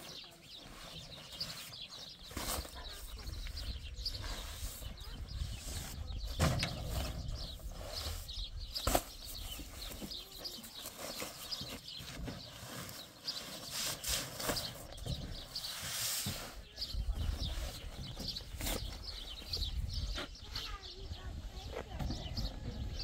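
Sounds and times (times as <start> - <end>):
sacks thudding on metal truck bed: 6.2 - 7.3
paper sacks rustling and scraping: 6.2 - 19.2.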